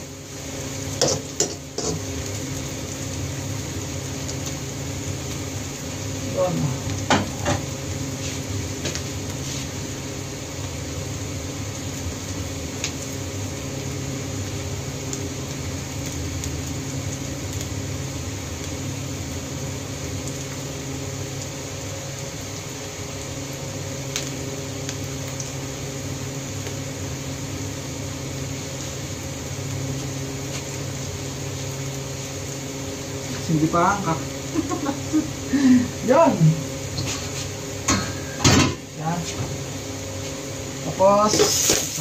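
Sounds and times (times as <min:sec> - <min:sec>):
food hissing in wok: 0:00.0 - 0:11.5, 0:31.5 - 0:42.0
low burner hum: 0:00.0 - 0:42.0.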